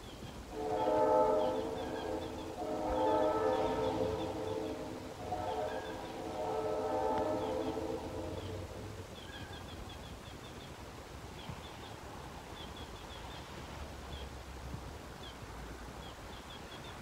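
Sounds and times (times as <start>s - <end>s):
outdoor background hiss: 0.0s - 17.0s
low rumble: 0.5s - 9.4s.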